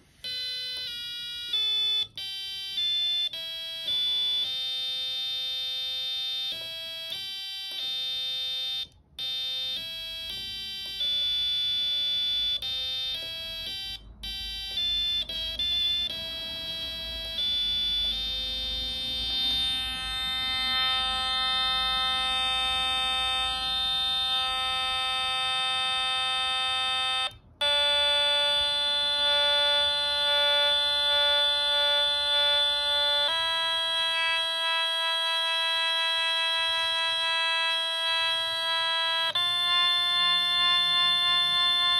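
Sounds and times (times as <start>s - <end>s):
buzzy electronic piano notes: 12.6s - 41.1s.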